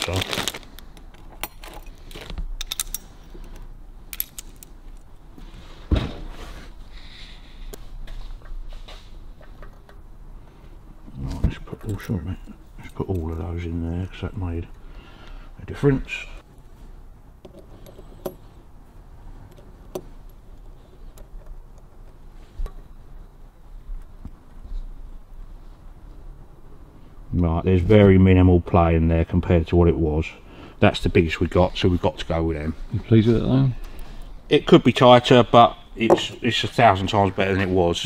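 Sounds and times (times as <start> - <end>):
metal parts clinking: 0.0 - 5.1.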